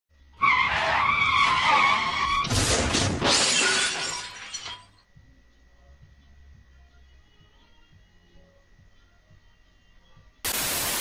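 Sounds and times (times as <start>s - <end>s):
loud crash and clatter: 2.0s - 4.9s.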